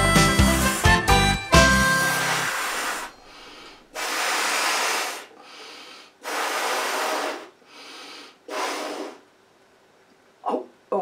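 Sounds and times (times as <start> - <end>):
breath puffs into balloon: 0.4 - 9.3
quiet breaths drawn in: 3.2 - 9.3.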